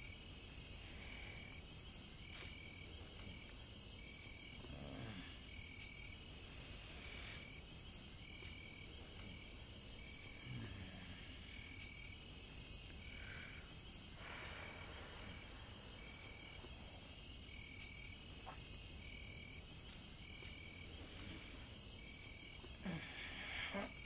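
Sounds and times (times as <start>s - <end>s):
short insect call: 0.0s - 24.0s.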